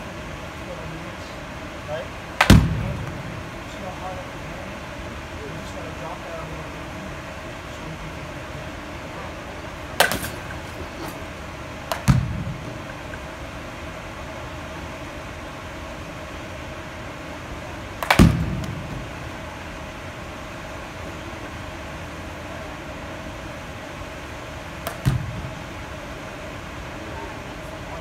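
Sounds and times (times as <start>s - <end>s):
steady hum: 0.0s - 28.0s
bat hitting baseball: 2.4s - 3.4s, 10.0s - 11.2s, 11.8s - 13.2s, 18.0s - 19.1s, 24.8s - 25.6s.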